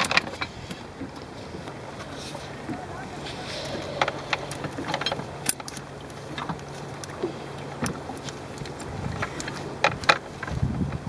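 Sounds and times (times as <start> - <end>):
steady low hum: 0.4 - 7.8.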